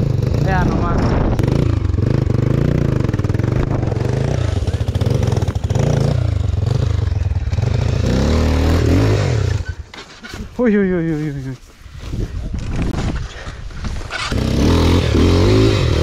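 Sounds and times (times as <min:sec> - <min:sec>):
dirt bike engine revving: 0:00.0 - 0:10.2, 0:14.0 - 0:16.0.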